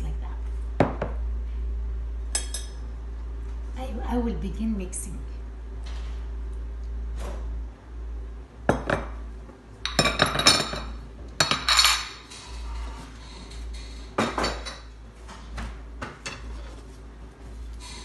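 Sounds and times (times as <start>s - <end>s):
dishes clinking against glass bowl: 2.3s - 2.8s.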